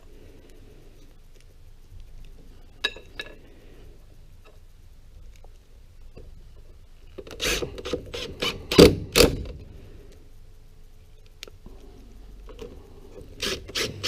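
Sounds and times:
impact driver driving screw into wood: 7.4 - 9.5, 13.4 - 14.0.

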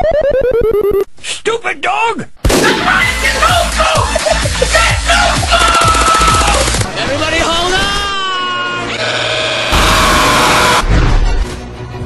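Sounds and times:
electronic dance music: 3.0 - 5.7.

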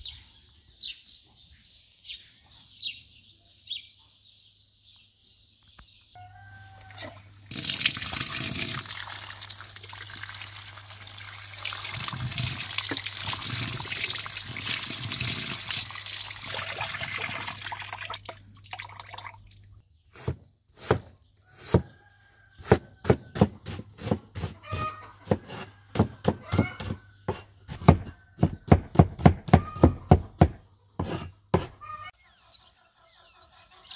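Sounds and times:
tap water running: 6.8 - 19.7
knife chopping on wooden board: 20.1 - 22.0, 22.6 - 31.8.

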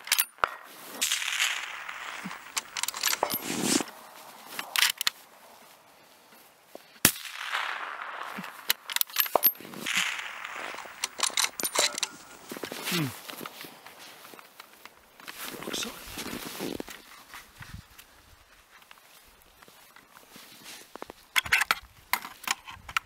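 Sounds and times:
rifle shot: 0.4 - 3.9, 7.0 - 12.4
rifle bolt clicks: 10.7 - 12.2.

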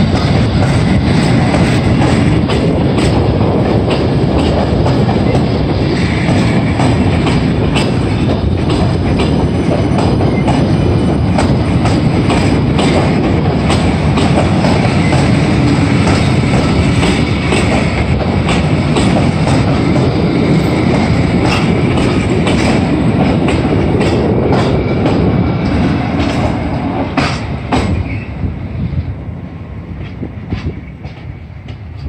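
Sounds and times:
train wheels clattering over rail joints: 0.0 - 28.3, 30.0 - 32.0.

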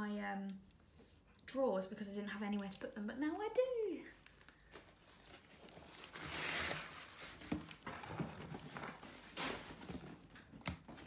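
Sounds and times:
crumpled paper rustling: 3.4 - 11.0.

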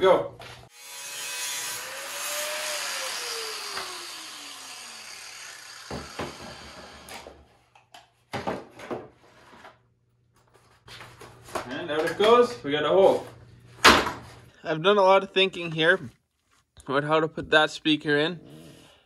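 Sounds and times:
power tool whirring: 0.7 - 7.4.

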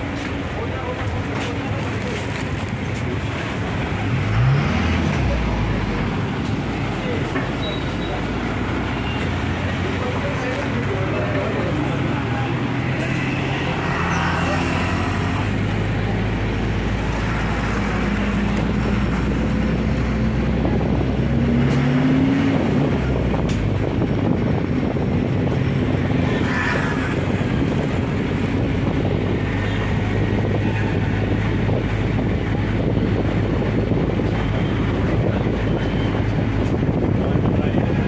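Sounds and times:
road noise: 0.0 - 38.0
wind buffeting microphone: 22.4 - 38.0.

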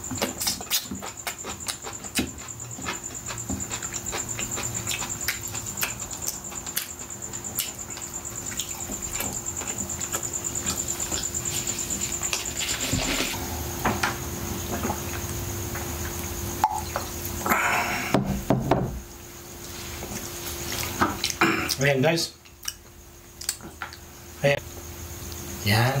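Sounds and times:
wet chewing and lip smacking: 0.2 - 11.4, 22.4 - 24.1.

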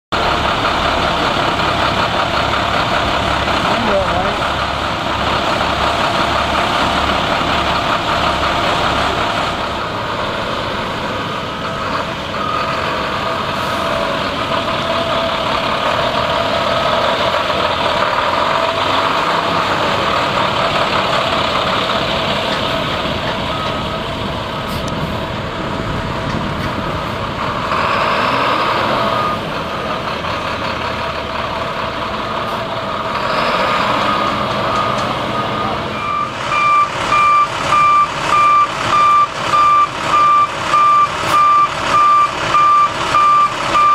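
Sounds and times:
diesel truck engine running: 0.1 - 43.9
backup alarm beeping: 34.8 - 43.9.

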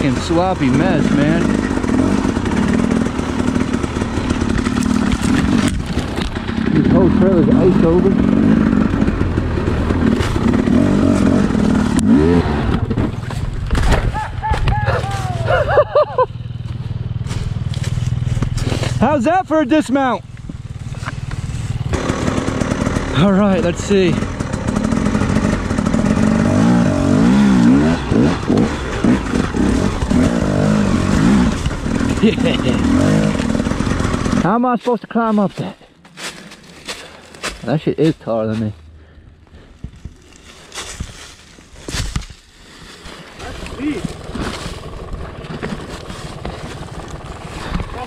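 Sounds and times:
dirt bike engine revving: 0.0 - 13.6, 14.4 - 34.7, 43.4 - 48.0
bike clattering: 43.3 - 48.0.

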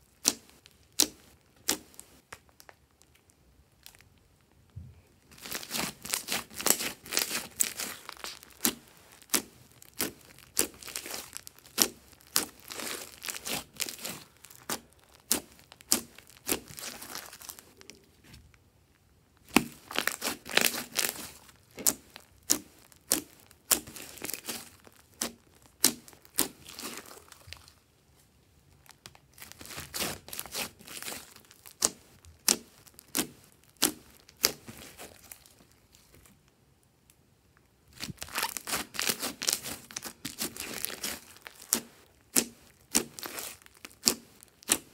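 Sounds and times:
slime clicking and popping: 19.5 - 27.0, 29.4 - 34.9, 38.0 - 44.9.

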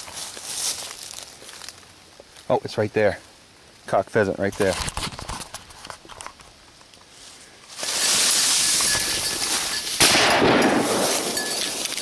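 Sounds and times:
shotgun shot: 10.0 - 11.4.

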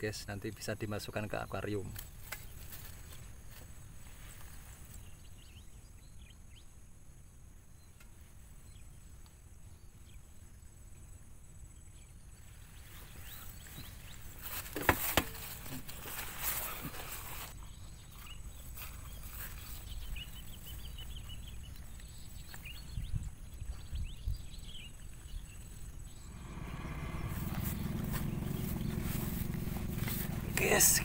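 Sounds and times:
rustling: 2.0 - 5.1, 12.8 - 21.1, 26.5 - 31.0.

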